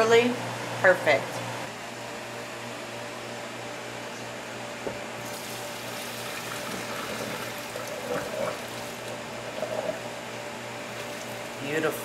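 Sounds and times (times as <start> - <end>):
water pouring into colander: 5.3 - 9.2.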